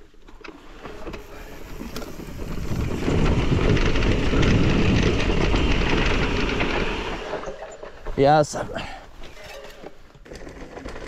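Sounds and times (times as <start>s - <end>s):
wind buffeting microphone: 1.4s - 7.4s.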